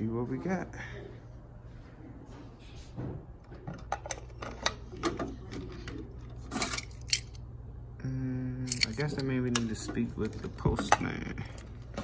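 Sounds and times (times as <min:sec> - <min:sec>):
keys jingling: 0:08.6 - 0:09.3.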